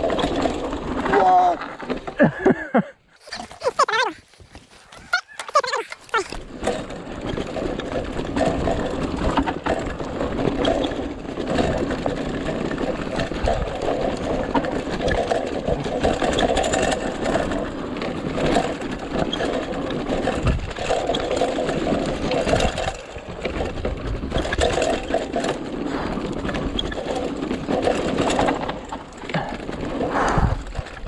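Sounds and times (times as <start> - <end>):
bike clattering over bumps: 0.0 - 2.7, 5.9 - 31.0
tyres rolling on dirt: 0.0 - 31.0.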